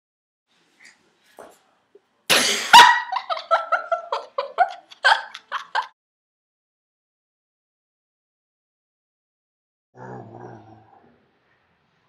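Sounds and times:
high-pitched laughter: 2.6 - 6.0.

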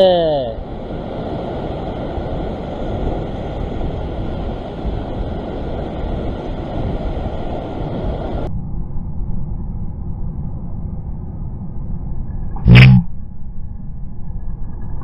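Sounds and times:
ocean surf over rocks: 0.0 - 8.5
wind buffeting microphone: 0.6 - 8.5.

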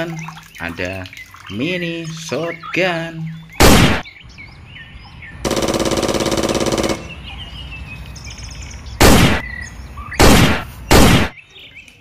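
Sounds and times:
birds chirping: 0.0 - 12.0
toy gunshot: 9.0 - 9.4, 10.2 - 11.3.

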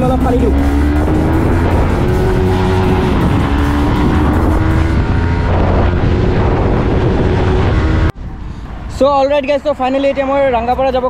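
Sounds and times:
motorcycle engine running: 0.0 - 8.1
wind rumble on microphone: 0.0 - 9.6.

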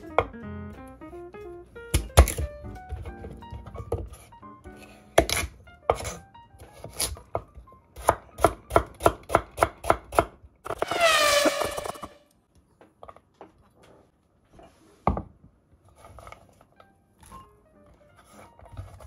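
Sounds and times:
knife chopping carrot on board: 1.9 - 10.4
loud rushing falling tones: 10.8 - 12.2.

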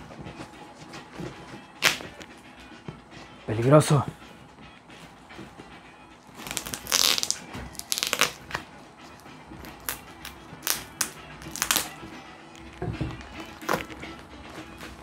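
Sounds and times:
knife slicing packing tape: 1.8 - 2.1, 6.4 - 8.6, 9.6 - 12.0.

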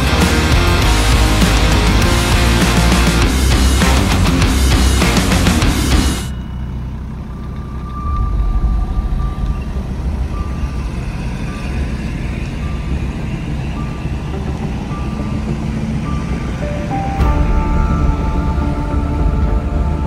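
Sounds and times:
off-road vehicle engine rumble: 0.0 - 20.0
thin high beep: 6.3 - 14.3.

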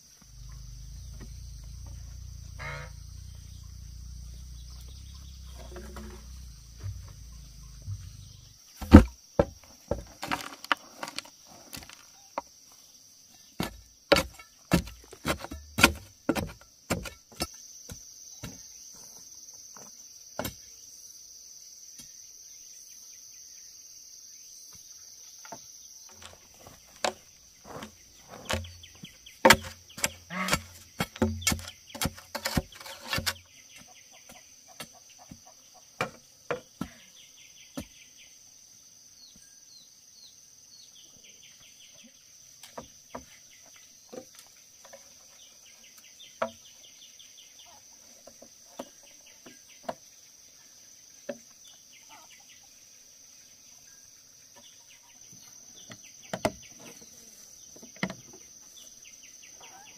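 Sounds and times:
short insect chirps: 0.0 - 36.4
high insect drone: 0.0 - 59.9
sharp knocks and thuds: 1.0 - 12.0, 13.6 - 18.7, 25.5 - 37.0.

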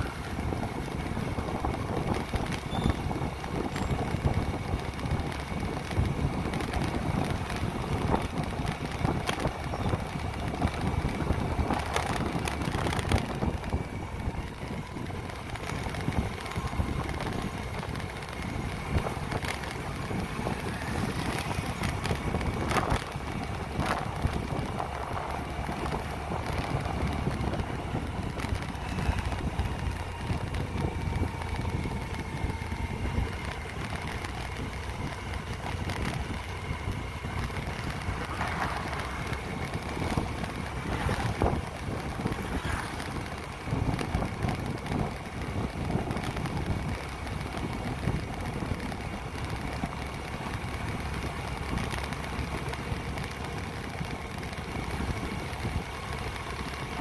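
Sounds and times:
road and vehicle noise: 0.0 - 57.0
wind buffeting microphone: 0.0 - 57.0.

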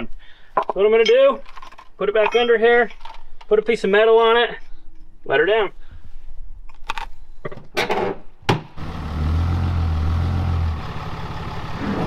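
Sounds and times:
vehicle engine droning: 8.8 - 12.0.

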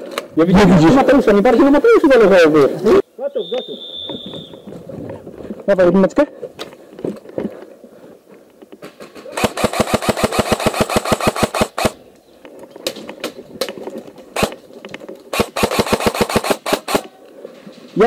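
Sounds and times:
airsoft rifle rapid bursts: 9.4 - 12.0, 15.3 - 17.1
airsoft rifle single shots: 15.3 - 17.1.

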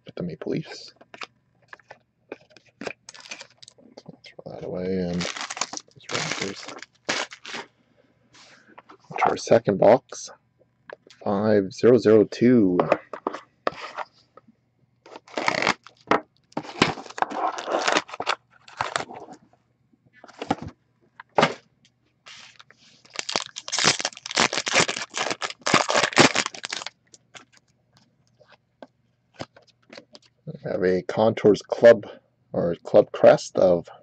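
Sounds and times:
foil wrappers crinkling and ripping: 2.8 - 3.7, 5.1 - 7.6, 15.1 - 16.1, 16.7 - 19.2, 22.3 - 27.6
cardboard box tearing: 16.8 - 19.2, 23.1 - 26.9.

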